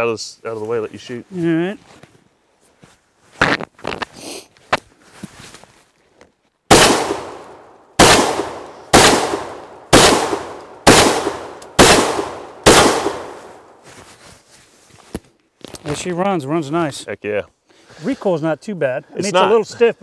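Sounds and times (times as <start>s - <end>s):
shotgun shots echoing: 6.7s - 13.7s.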